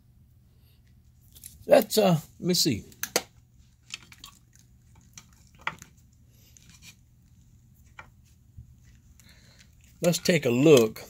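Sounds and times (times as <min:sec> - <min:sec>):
low steady hum: 0:00.0 - 0:11.0
small clicks and handling noises: 0:08.8 - 0:11.0.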